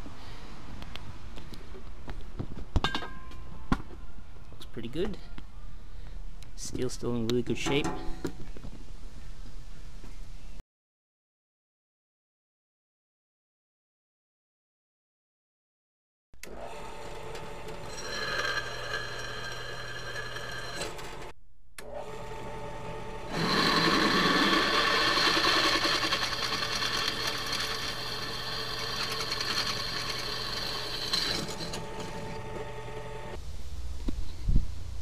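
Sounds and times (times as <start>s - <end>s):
drill bit whining in steel: 16.4s - 21.3s, 22.0s - 33.4s
drill press motor hum: 16.4s - 33.4s.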